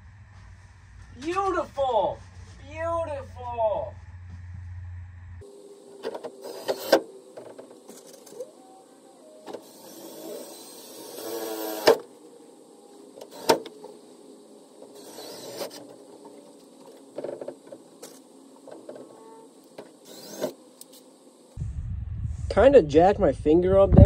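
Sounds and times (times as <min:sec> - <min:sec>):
cordless drill whirring: 0:06.1 - 0:08.5, 0:09.4 - 0:12.1, 0:13.2 - 0:13.8, 0:14.9 - 0:16.0, 0:20.0 - 0:21.0.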